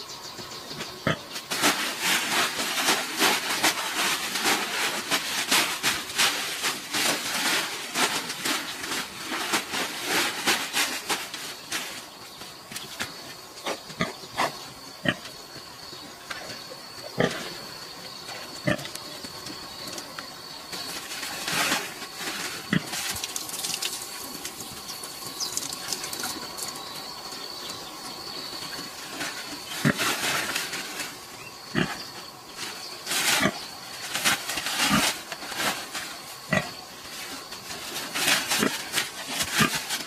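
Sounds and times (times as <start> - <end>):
dry leaves rustling and crackling: 1.5 - 12.3, 20.7 - 40.0.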